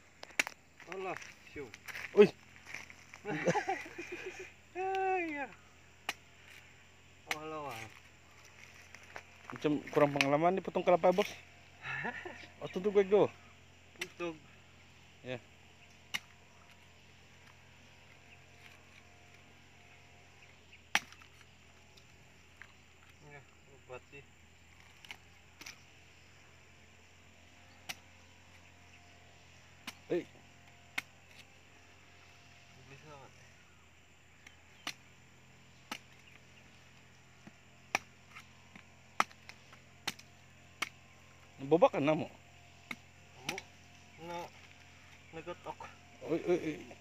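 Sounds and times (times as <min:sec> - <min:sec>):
machete chopping coconut: 0:00.2 - 0:01.0, 0:06.0 - 0:06.3, 0:07.2 - 0:07.9, 0:09.9 - 0:10.5, 0:13.9 - 0:14.3, 0:15.9 - 0:17.6, 0:20.6 - 0:21.6, 0:24.8 - 0:25.9, 0:27.8 - 0:28.6, 0:29.7 - 0:31.5, 0:34.4 - 0:41.0, 0:42.8 - 0:43.8.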